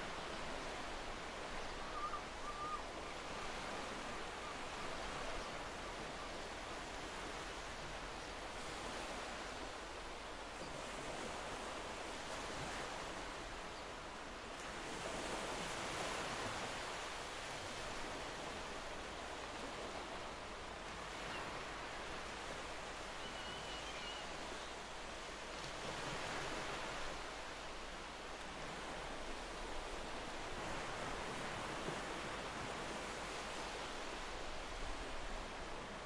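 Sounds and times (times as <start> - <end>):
faint high chirp: 23.2 - 24.3.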